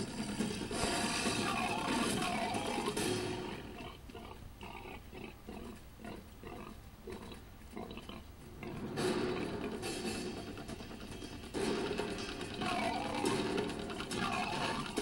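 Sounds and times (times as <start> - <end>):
dinosaur grunting: 1.2 - 10.0, 12.5 - 15.0.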